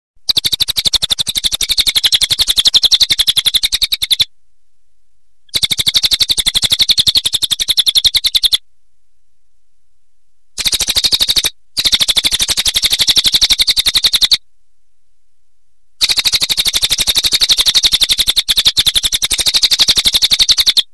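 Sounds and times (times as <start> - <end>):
bird rattling call: 0.2 - 4.3, 5.5 - 8.6, 10.6 - 14.4, 16.0 - 20.9.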